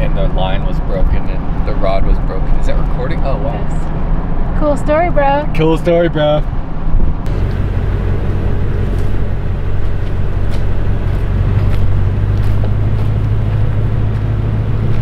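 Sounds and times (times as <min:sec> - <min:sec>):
car cabin drone: 0:00.0 - 0:15.0.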